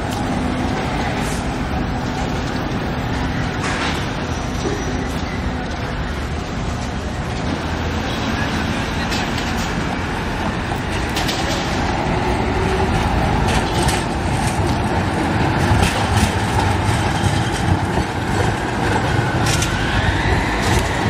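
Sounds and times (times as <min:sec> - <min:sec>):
tram motor whine: 0:00.0 - 0:21.0
tram running on track: 0:00.0 - 0:21.0
wheels clicking over rail joints: 0:00.0 - 0:21.0.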